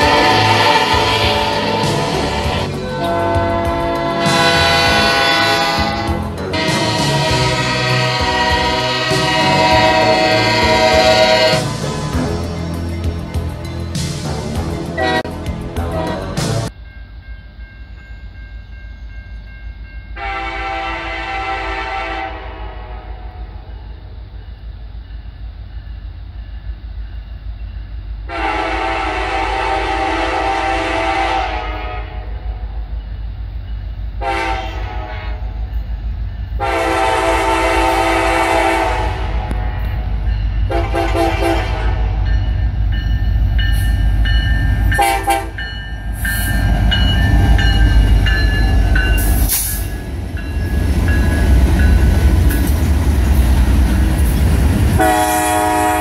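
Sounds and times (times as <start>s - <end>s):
train air horn blasts: 0.0s - 11.8s, 15.0s - 15.4s, 20.2s - 23.6s, 28.3s - 32.5s, 34.2s - 35.6s, 36.6s - 39.8s, 40.7s - 42.4s, 43.7s - 50.0s, 55.0s - 56.0s
diesel locomotives running: 0.0s - 56.0s
train wheels on rails: 0.0s - 56.0s.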